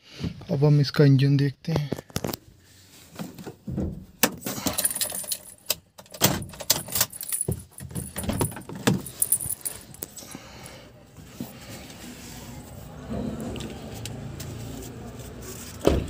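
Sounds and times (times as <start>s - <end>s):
handling clicks and knocks: 4.2s - 10.2s
car keys jangling: 4.4s - 10.4s.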